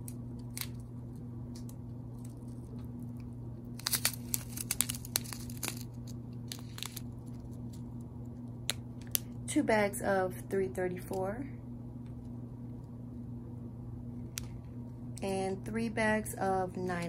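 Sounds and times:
steady low hum: 0.0 - 17.0
plastic bags crinkling: 3.7 - 7.8.

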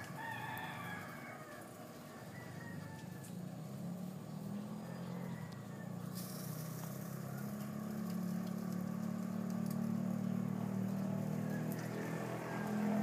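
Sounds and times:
low motor hum: 2.9 - 13.0
faint crackles: 5.5 - 13.0.

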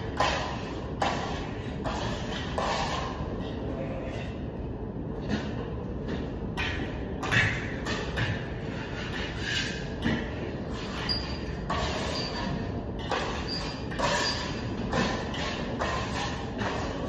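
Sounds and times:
trowel scraping plaster: 0.1 - 4.4, 7.9 - 17.0.

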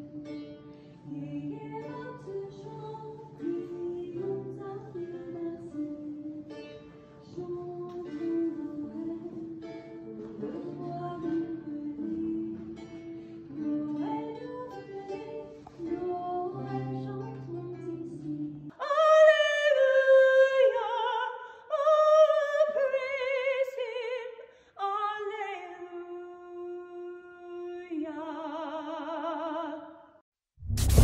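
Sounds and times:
plucked acoustic guitar music: 0.0 - 18.7
woman singing unaccompanied: 0.0 - 29.9.

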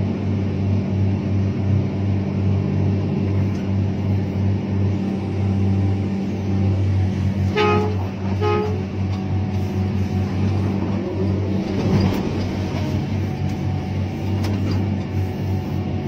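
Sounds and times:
excavator diesel engine droning: 0.0 - 16.0
horn toots: 7.4 - 9.0.

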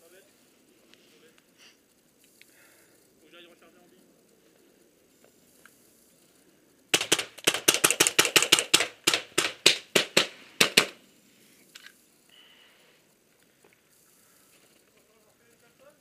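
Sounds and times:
paintball marker firing rapidly: 6.9 - 11.0.

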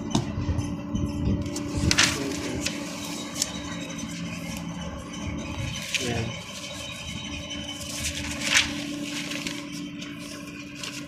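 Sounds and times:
low machinery hum: 0.0 - 11.0
paper rustling: 1.5 - 4.7, 5.5 - 11.0.

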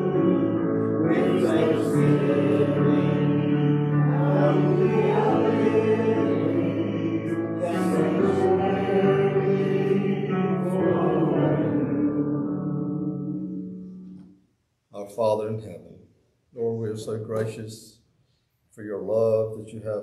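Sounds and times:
man singing: 0.0 - 11.4
congregation singing: 0.0 - 14.1
accompanying music: 0.0 - 14.4.

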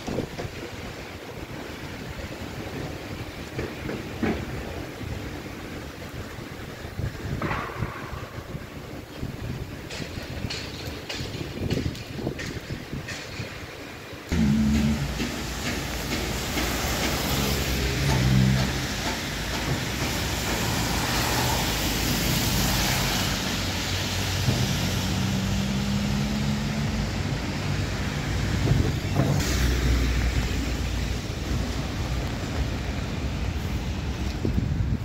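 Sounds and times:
tyre hiss on wet road: 0.0 - 35.0
passing vehicle engines hum: 14.3 - 35.0.

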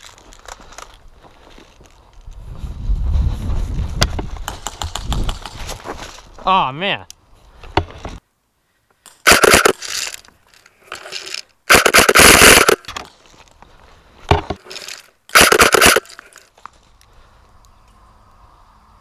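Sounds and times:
scraping and rustling on microphone: 2.2 - 6.4.

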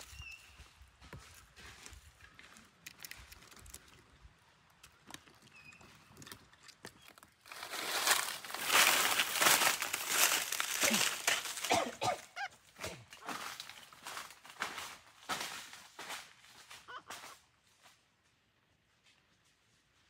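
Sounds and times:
footsteps crunching dry leaves: 0.0 - 4.0, 7.4 - 18.0.

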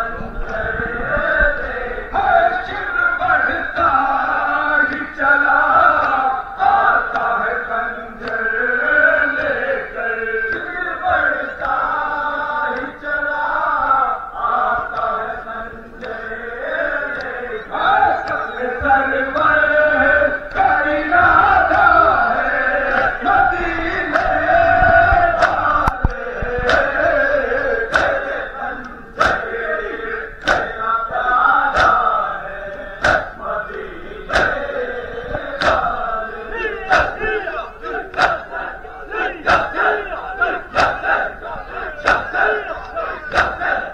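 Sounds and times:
men chanting: 0.0 - 43.9
hands slapping chests: 25.3 - 27.0, 27.8 - 29.5, 30.4 - 31.0, 31.7 - 32.2, 32.8 - 34.7, 35.4 - 36.0, 36.9 - 38.7, 39.4 - 41.3, 42.0 - 43.8.

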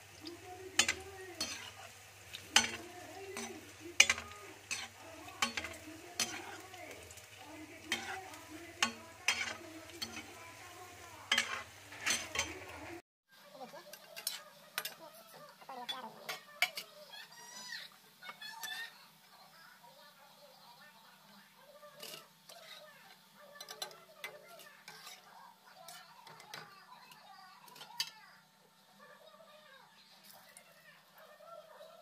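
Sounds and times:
food sizzling in deep oil: 0.0 - 32.0
metal spoon clinking on pan: 0.7 - 7.2, 7.8 - 10.4, 11.3 - 12.7, 13.9 - 15.0, 15.8 - 16.9.

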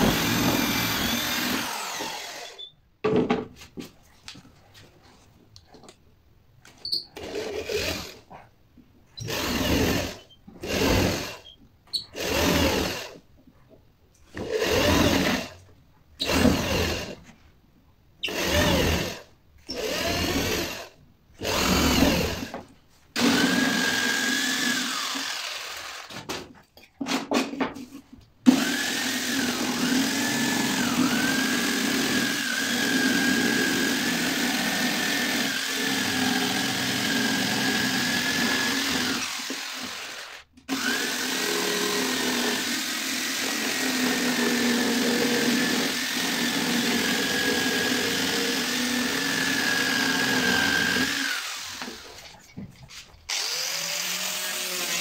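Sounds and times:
electric jigsaw cutting wood: 0.0 - 2.6, 7.2 - 8.2, 9.2 - 11.4, 12.2 - 13.2, 14.4 - 15.6, 16.2 - 17.2, 18.3 - 22.6, 23.2 - 26.4, 28.4 - 52.4, 53.3 - 55.0
electric drill boring into wood: 0.0 - 2.7, 7.2 - 8.2, 9.2 - 13.2, 14.4 - 15.6, 16.2 - 17.2, 18.2 - 22.6, 23.2 - 26.2, 28.5 - 52.3, 53.3 - 55.0.

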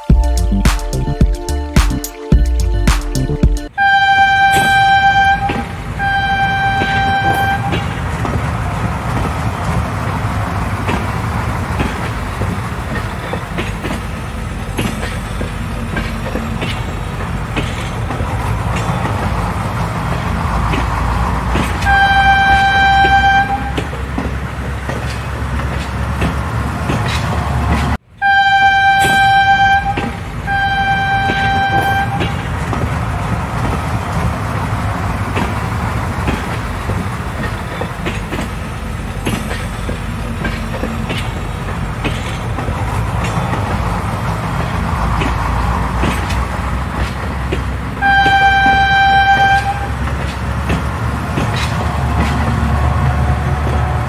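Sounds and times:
train wagons rumbling on rails: 2.6 - 54.0
train horn: 3.7 - 8.0, 21.8 - 24.0, 28.2 - 32.5, 48.0 - 50.1.

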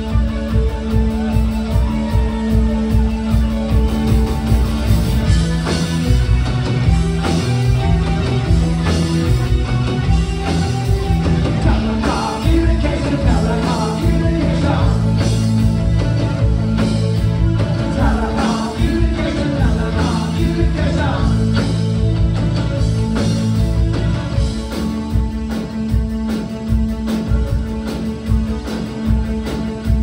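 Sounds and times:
live rock band playing: 0.0 - 30.0
lead vocal singing: 11.5 - 16.0, 17.6 - 22.1.

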